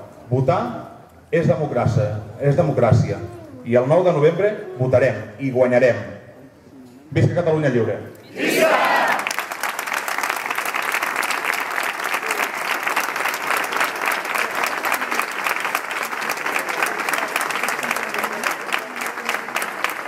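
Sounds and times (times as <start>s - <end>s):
crowd applauding: 8.5s - 20.0s.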